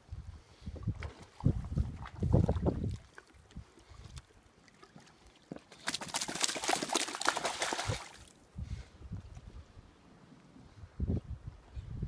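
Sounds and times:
droplets pattering on water: 5.5s - 8.3s
dog shaking off water: 5.8s - 8.2s.

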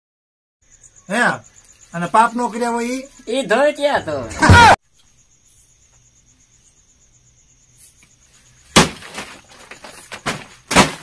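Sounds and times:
cricket trilling: 0.6s - 11.0s
small knocks and rustling: 8.8s - 11.0s.

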